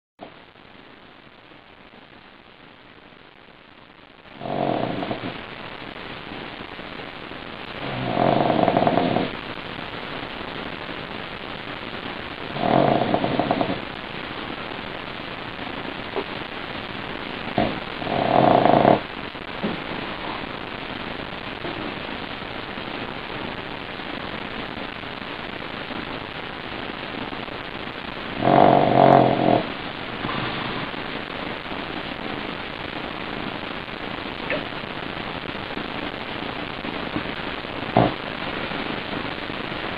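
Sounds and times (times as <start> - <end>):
dog snoring: 4.4 - 5.3, 7.8 - 9.4, 12.5 - 13.9, 17.5 - 19.0, 28.4 - 29.8, 37.9 - 38.2.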